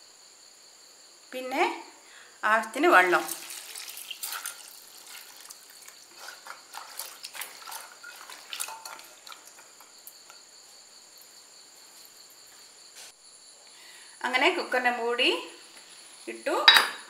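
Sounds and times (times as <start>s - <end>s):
crickets chirping: 0.0s - 17.0s
water pouring into a pot: 2.9s - 10.4s
ladle stirring and clicking on pot: 3.3s - 10.4s.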